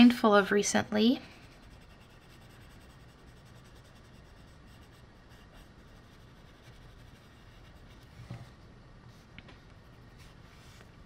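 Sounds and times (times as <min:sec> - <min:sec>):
pencil scratching on paper: 0:01.2 - 0:08.4.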